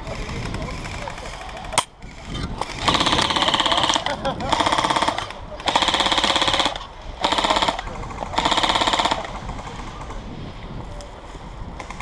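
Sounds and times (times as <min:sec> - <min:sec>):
airsoft gun full-auto bursts: 0:02.6 - 0:09.7.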